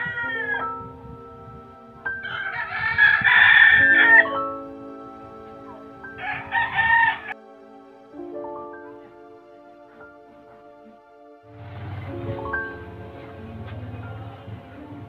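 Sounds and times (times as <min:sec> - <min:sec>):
rooster crowing: 0:00.0 - 0:00.7, 0:02.2 - 0:04.4, 0:06.2 - 0:07.4
soft background music: 0:00.0 - 0:15.0.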